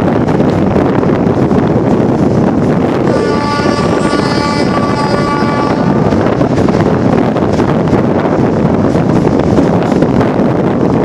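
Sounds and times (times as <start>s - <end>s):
train running noise: 0.0s - 11.0s
wind buffeting microphone: 0.0s - 11.0s
steady high tone: 3.0s - 7.0s.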